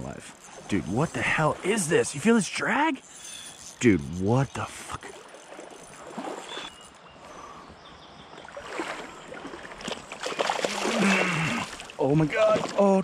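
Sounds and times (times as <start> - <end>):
creek flowing: 0.0 - 7.3, 8.3 - 13.0
fish thrashing in water: 8.6 - 12.9.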